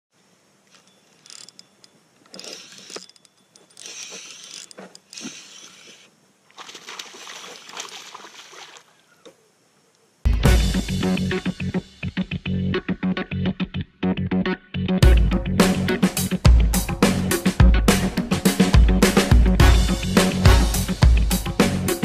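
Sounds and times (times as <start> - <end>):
fish thrashing and splashing: 3.7 - 9.0.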